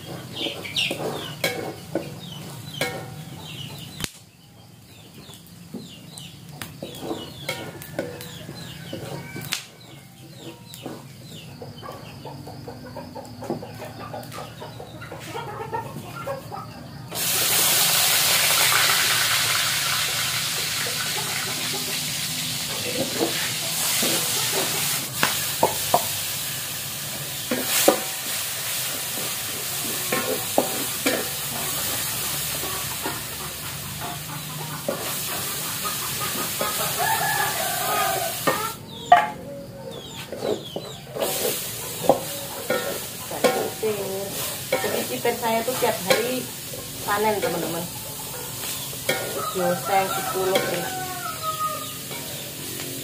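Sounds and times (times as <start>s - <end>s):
spatula scraping a wok: 0.0s - 3.3s, 6.8s - 9.2s, 17.2s - 38.8s, 40.2s - 53.0s
chickens clucking: 0.0s - 53.0s
food sizzling in hot oil: 17.1s - 38.8s, 41.1s - 53.0s.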